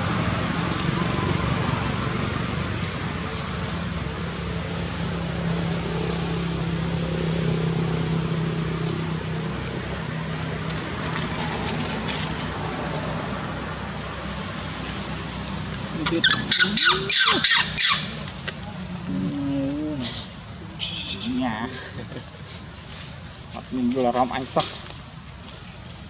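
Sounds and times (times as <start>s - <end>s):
vehicle engine humming: 0.0s - 26.0s
baby monkey squealing: 16.0s - 18.4s.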